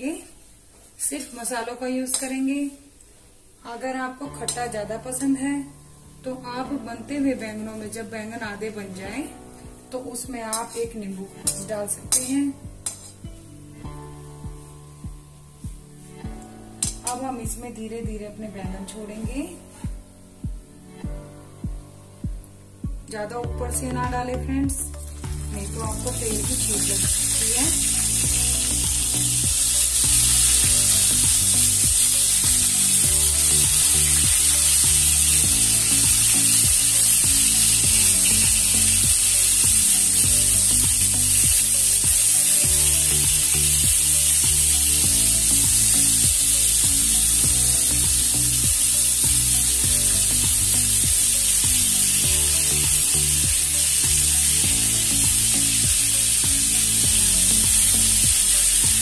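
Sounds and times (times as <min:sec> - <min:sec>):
background music: 0:03.6 - 0:59.0
vegetables sizzling in hot oil: 0:10.4 - 0:13.1, 0:25.4 - 0:59.0.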